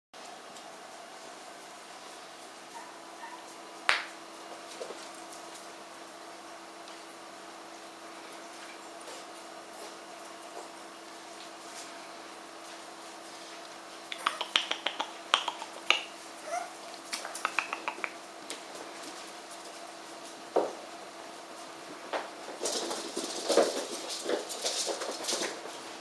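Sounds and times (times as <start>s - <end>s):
puppies scuffling and clicking: 0.2s - 1.7s, 2.3s - 5.8s, 7.7s - 11.9s, 12.5s - 20.8s, 21.4s - 26.0s
puppy yips and growls: 2.7s - 3.5s, 14.2s - 14.8s, 16.4s - 18.1s.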